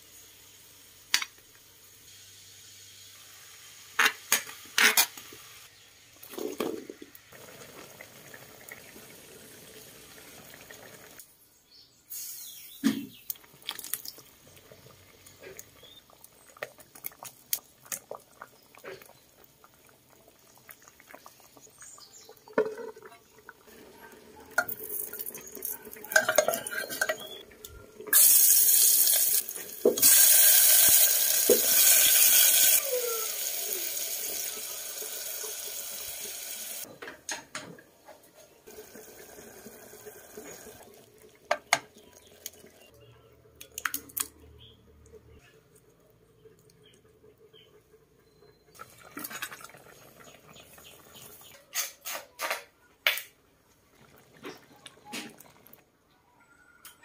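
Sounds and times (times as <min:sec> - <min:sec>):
water pouring into pot: 0:06.1 - 0:11.2, 0:13.3 - 0:36.9, 0:38.7 - 0:42.9, 0:45.8 - 0:51.5
utensils clinking on metal pot: 0:24.6 - 0:27.4.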